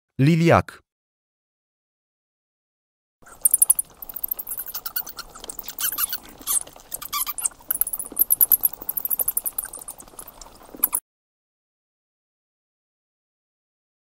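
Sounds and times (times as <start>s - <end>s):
bat squeaking and chittering: 3.2s - 11.0s.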